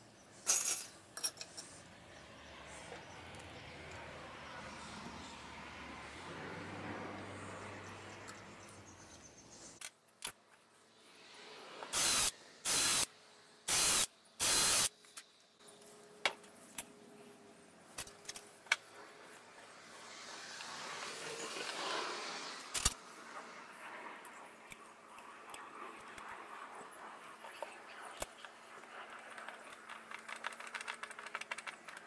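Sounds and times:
spray hiss bursts: 11.5 - 15.0.

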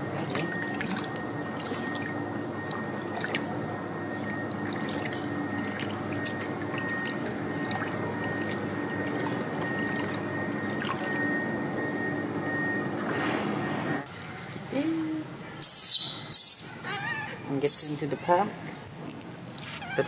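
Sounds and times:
water splashing in a plastic basin: 0.0 - 3.6, 4.2 - 11.2.

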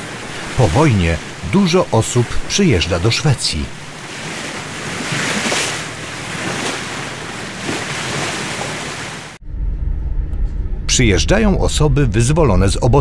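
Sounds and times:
sea surf breaking on rocks: 0.0 - 9.4.

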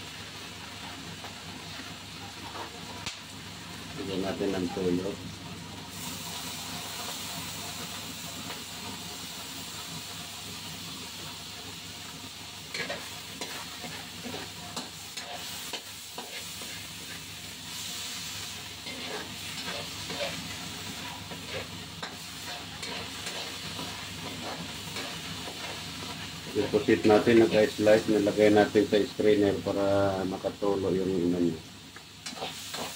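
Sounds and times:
food sizzling in a wok: 0.0 - 32.9
metal spatula scraping pan: 12.7 - 17.2, 18.8 - 27.6.

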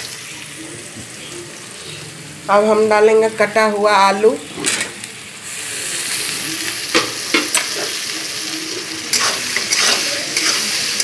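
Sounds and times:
potatoes sizzling in hot oil: 0.0 - 11.0
metal spatula scraping pan: 9.1 - 11.0.

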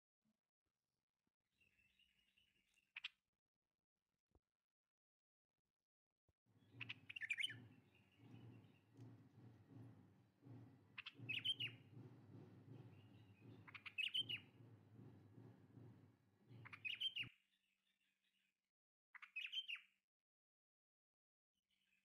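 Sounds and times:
bird chirping: 6.6 - 15.9, 16.5 - 17.3, 19.2 - 19.8
low background rumble: 6.6 - 17.0.

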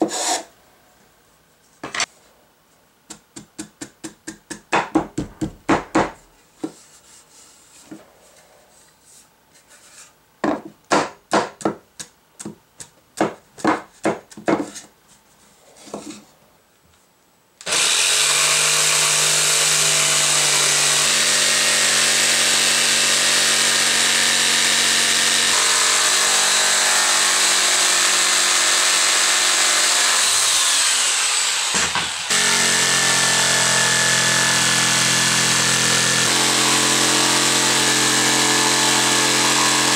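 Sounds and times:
knocks on wooden boards: 3.1 - 6.8, 10.4 - 11.8, 13.2 - 14.8, 31.7 - 32.2
electric jigsaw cutting wood: 17.6 - 39.9.

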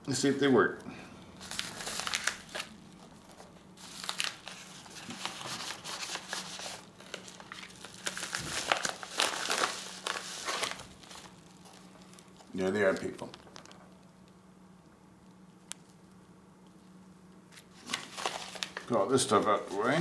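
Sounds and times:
faint steady hum: 0.0 - 20.0
packaging crinkling: 1.4 - 14.4, 17.5 - 20.0.

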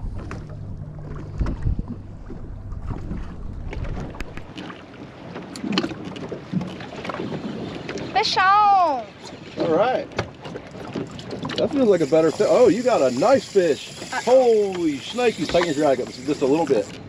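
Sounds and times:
wind on microphone: 0.0 - 4.5
low hum: 0.0 - 4.6
water moving at hull: 0.0 - 17.0.

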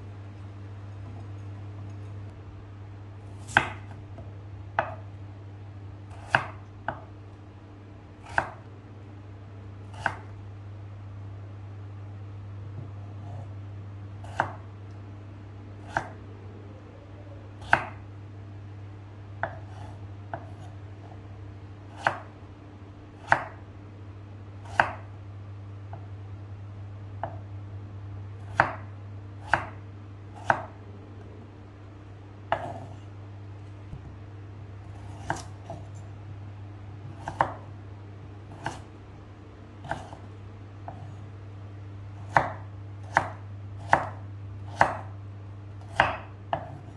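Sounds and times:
steady low hum: 0.0 - 46.9
knife chopping on wooden board: 3.4 - 5.0, 6.1 - 7.1, 8.2 - 8.6, 9.9 - 10.3, 14.2 - 14.7, 17.6 - 18.0, 19.4 - 20.8, 21.9 - 22.3, 23.2 - 23.6, 24.6 - 25.1, 28.5 - 29.8, 30.4 - 30.8, 32.5 - 33.0, 35.0 - 36.0, 37.0 - 37.6, 38.5 - 38.9, 39.8 - 40.3, 40.9 - 41.1, 42.2 - 45.2, 45.8 - 46.9.

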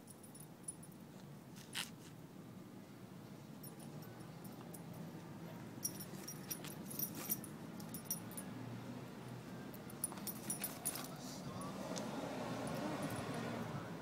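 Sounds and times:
dog collar tags jingling: 5.8 - 8.5, 9.8 - 11.8.

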